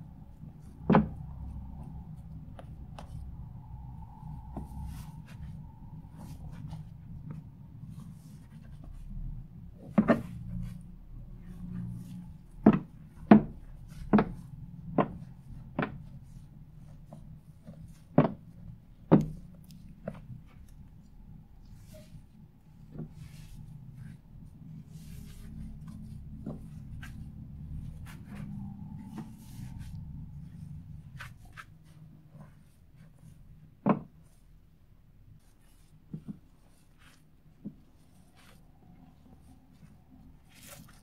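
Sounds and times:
spatula working foamy slime: 23.1s - 33.5s, 34.1s - 41.0s.

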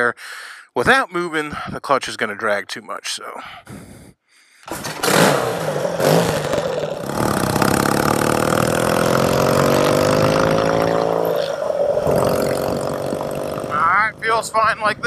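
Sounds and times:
motorcycle engine revving and accelerating: 4.7s - 13.9s.

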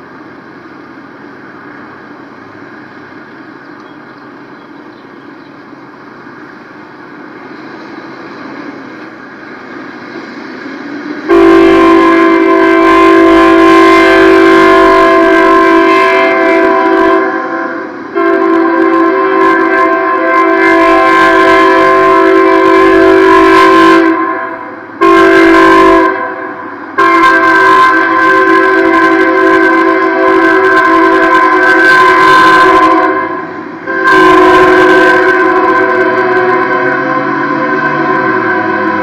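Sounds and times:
approaching train rumble: 0.0s - 39.0s
locomotive air horn: 11.2s - 39.0s.

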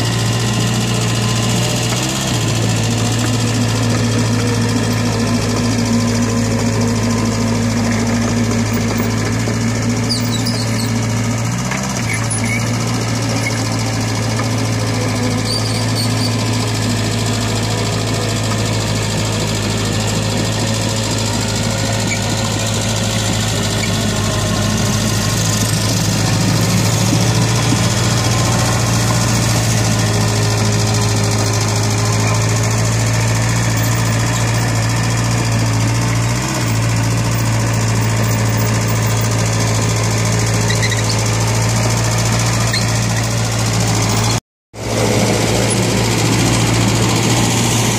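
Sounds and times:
excavator diesel engine running: 0.0s - 47.9s
excavator digging wet mud: 0.0s - 47.9s.

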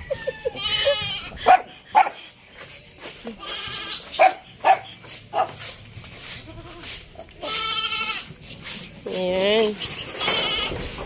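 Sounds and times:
goat bleating: 0.2s - 1.5s, 3.2s - 4.2s, 6.4s - 8.4s, 10.2s - 11.0s.

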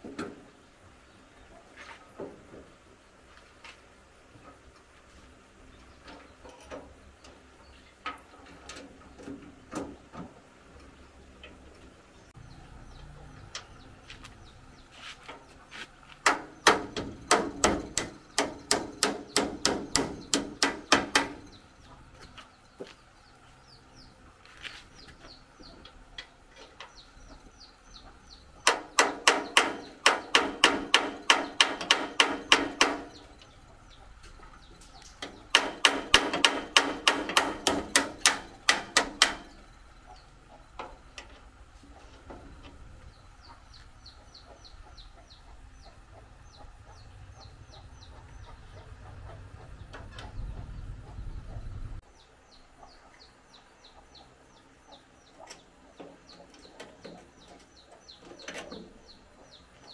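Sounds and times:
rapid taps on metal: 16.2s - 21.6s, 28.6s - 33.5s, 35.2s - 39.6s.

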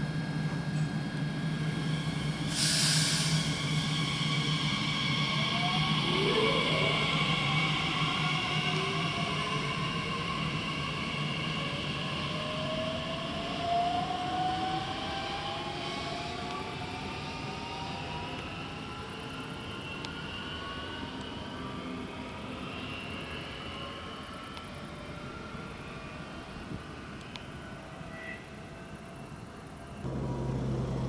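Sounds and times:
train low rumble: 0.0s - 10.7s, 26.5s - 31.0s
electric train traction whine: 30.0s - 31.0s.

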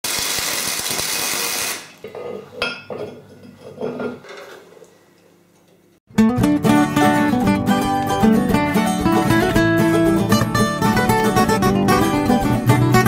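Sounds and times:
welder arc crackling: 0.0s - 2.0s
plucked acoustic guitar tune: 6.1s - 13.0s.

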